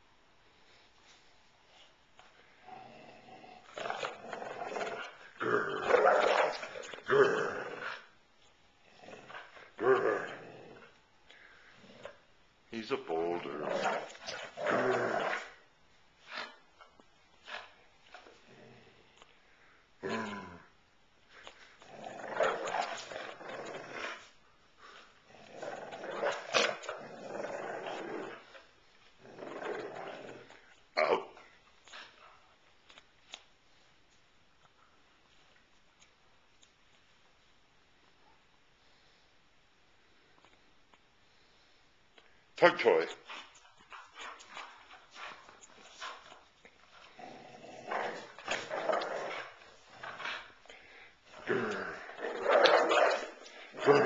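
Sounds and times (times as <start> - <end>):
dog growling in play: 2.6 - 8.2, 8.8 - 12.2, 13.3 - 15.6, 17.4 - 19.2, 20.0 - 20.7, 21.8 - 32.2, 43.2 - 54.0.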